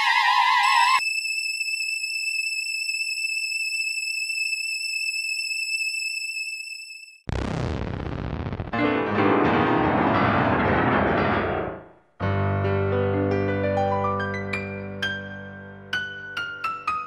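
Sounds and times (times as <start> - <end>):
film music: 8.8 - 17.0.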